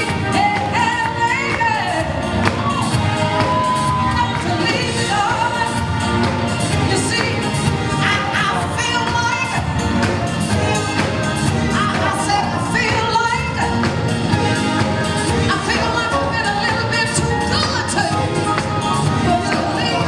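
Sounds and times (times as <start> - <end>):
woman singing into a microphone: 0.0 - 2.2, 3.4 - 5.9, 19.1 - 20.0
live band playing disco-soul: 0.0 - 20.0.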